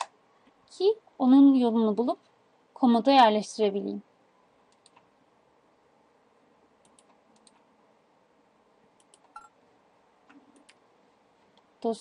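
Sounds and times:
faint computer mouse clicks: 0:04.7 - 0:05.1, 0:06.8 - 0:07.7, 0:09.0 - 0:09.5.

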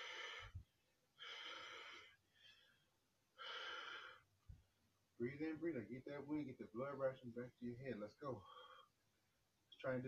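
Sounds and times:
man breathing heavily: 0:00.0 - 0:04.3, 0:08.4 - 0:09.0.

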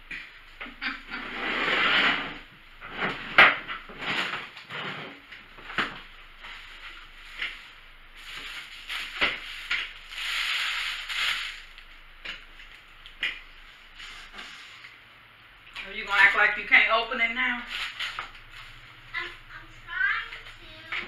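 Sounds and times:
paper bags rustling and crinkling: 0:02.8 - 0:12.8, 0:17.6 - 0:19.0.

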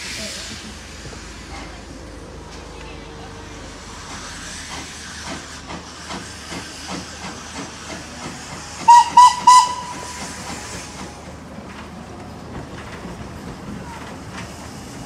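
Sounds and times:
steam hissing: 0:03.5 - 0:11.6
steam whistle toots: 0:08.8 - 0:10.9.

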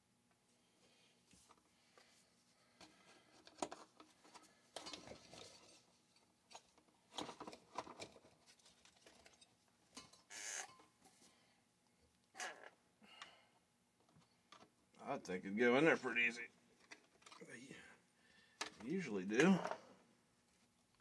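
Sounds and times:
plastic parts clicking and tapping: 0:02.8 - 0:05.8.

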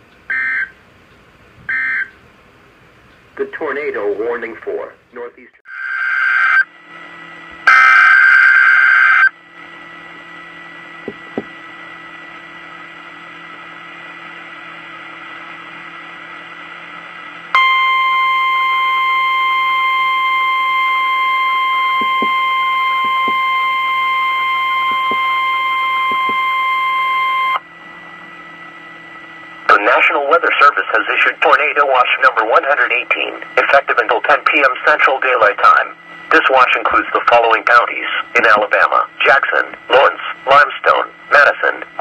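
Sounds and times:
radio hiss: 0:29.7 - 0:42.0.

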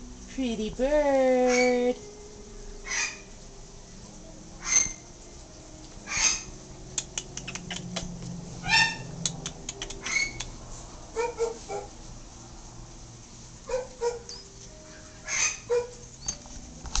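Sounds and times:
parrot squawking and chattering: 0:01.5 - 0:01.9, 0:02.8 - 0:03.3, 0:04.6 - 0:05.1, 0:06.0 - 0:10.6, 0:15.0 - 0:16.0
beak clicking on cage bars: 0:06.1 - 0:08.4, 0:09.2 - 0:10.6.

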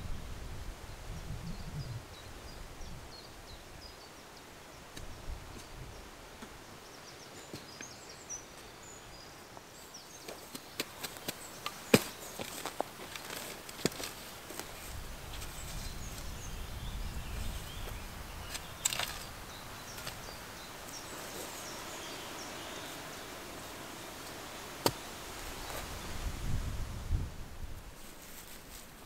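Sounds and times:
small birds chirping: 0:00.9 - 0:26.2.

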